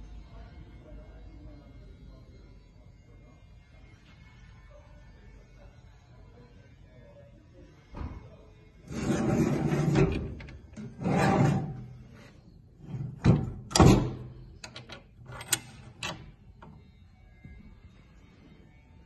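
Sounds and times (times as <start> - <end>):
steel doors sliding with scrape: 8.9 - 16.3
doors knocking and latching: 13.0 - 16.3.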